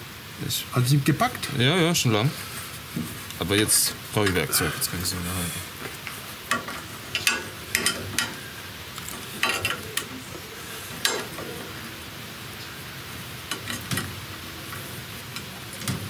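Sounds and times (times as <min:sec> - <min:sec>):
steady background hiss: 0:00.0 - 0:16.0
hand tools clinking on metal: 0:03.4 - 0:04.9, 0:06.0 - 0:11.8, 0:13.4 - 0:16.0.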